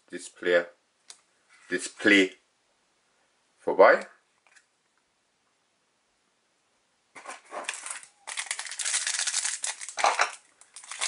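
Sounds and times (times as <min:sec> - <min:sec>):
foil wrapper crinkling: 0:07.2 - 0:11.0.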